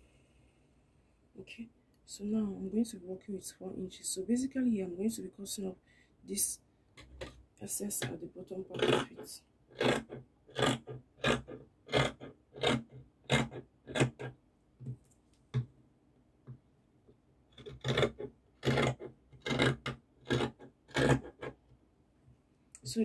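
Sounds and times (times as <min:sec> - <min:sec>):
scissors snipping fabric: 0:08.8 - 0:09.2.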